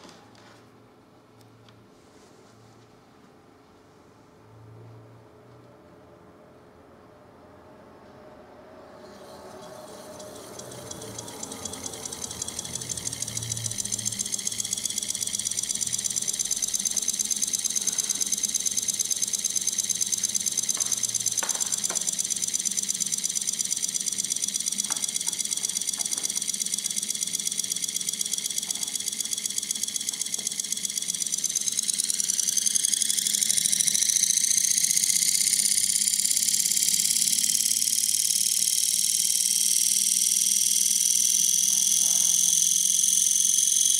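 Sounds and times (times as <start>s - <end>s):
electric motor whine: 9.0s - 43.9s.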